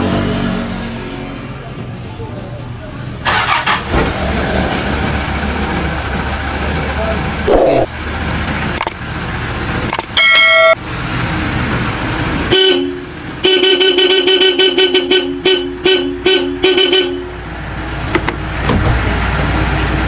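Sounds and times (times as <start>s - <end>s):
two-note car horn toots: 10.2s - 10.8s.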